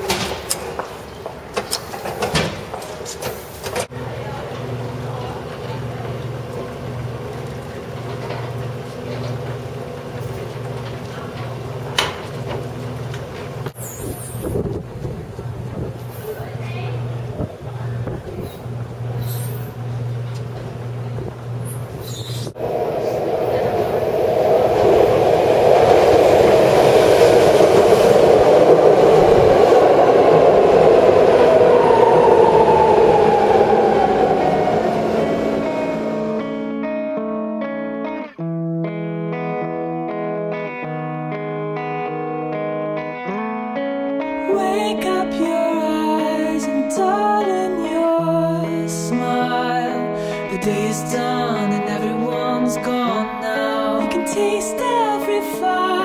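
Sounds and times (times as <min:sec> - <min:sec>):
train wheel and rail noise: 0:00.0 - 0:36.8
escalator machinery humming: 0:03.8 - 0:37.5.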